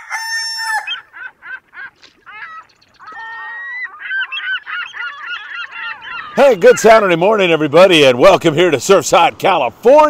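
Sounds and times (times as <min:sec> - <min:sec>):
rooster crowing: 0:00.0 - 0:01.0.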